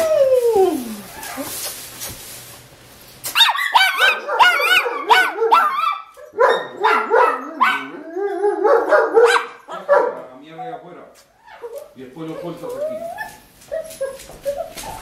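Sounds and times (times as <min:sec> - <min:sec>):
dog barking and howling: 0:03.4 - 0:10.2, 0:11.5 - 0:15.0.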